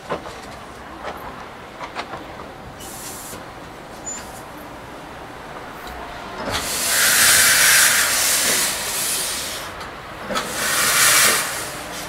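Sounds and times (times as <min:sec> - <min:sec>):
hiss of exhausting steam: 0:02.8 - 0:12.0.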